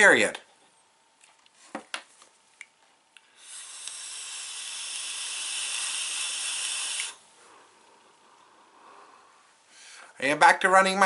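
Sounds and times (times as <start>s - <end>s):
electronic cigarette vapour hiss: 3.2s - 9.2s.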